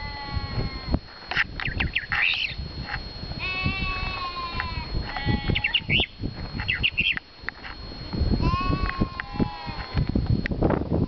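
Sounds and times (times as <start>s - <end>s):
livestock bleating: 0.0s - 1.0s, 3.4s - 5.9s, 8.4s - 10.1s
mockingbird singing: 1.3s - 2.6s, 5.2s - 7.3s.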